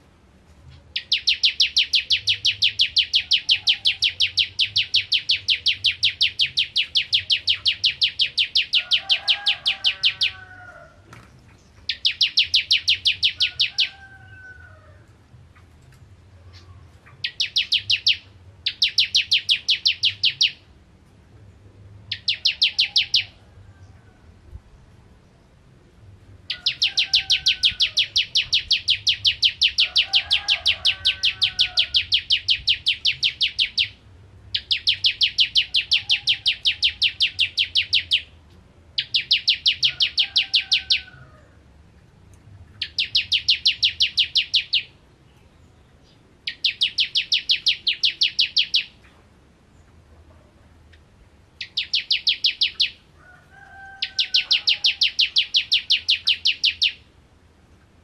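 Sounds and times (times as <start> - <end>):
bird singing rapid shrill notes: 1.0 - 10.4, 11.9 - 14.0, 16.5 - 20.7, 22.1 - 23.4, 26.5 - 38.4, 39.0 - 41.0, 42.8 - 45.0, 46.4 - 49.0, 51.6 - 53.1, 54.0 - 57.1.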